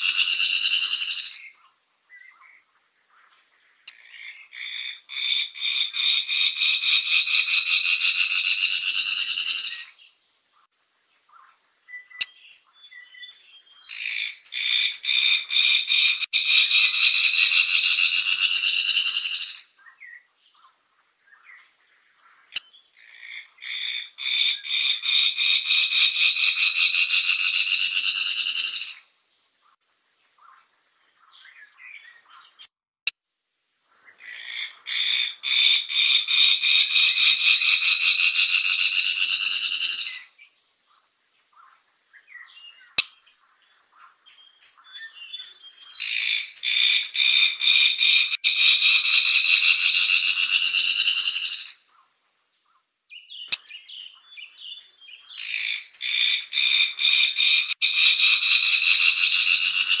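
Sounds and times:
bird calling with buzzing trill: 0:46.0 - 0:51.7, 0:55.5 - 1:00.0.

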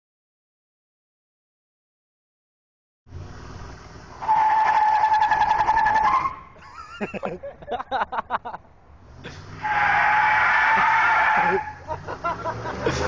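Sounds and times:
tires squealing: 0:04.1 - 0:06.9, 0:09.1 - 0:13.0.

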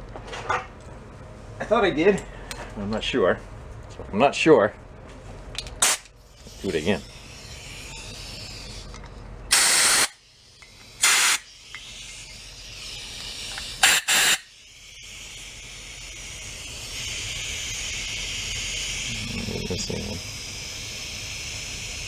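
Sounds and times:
compressed air bursts: 0:09.5 - 0:22.0
steady hiss: 0:09.5 - 0:22.0.

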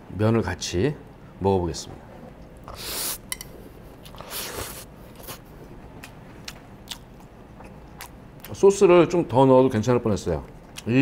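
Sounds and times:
chewing with sharp clicks: 0:06.0 - 0:08.6.

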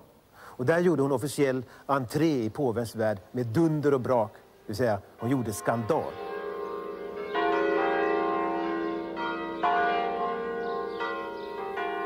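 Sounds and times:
church bells ringing: 0:05.2 - 0:12.0.

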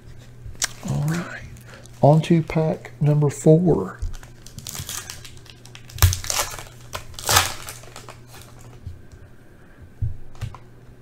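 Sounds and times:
cards rustling: 0:04.0 - 0:08.8
foil wrapper tearing and crinkling: 0:04.1 - 0:08.8.

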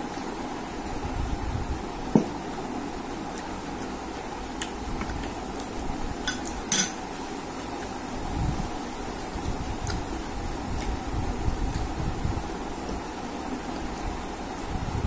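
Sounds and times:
steel tableware clinking: 0:06.2 - 0:07.0.

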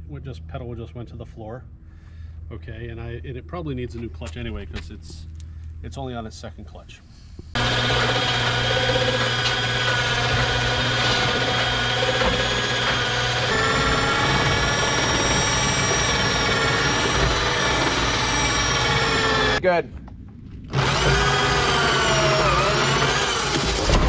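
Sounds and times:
electric winch motor running: 0:07.6 - 0:19.6, 0:20.7 - 0:24.0.

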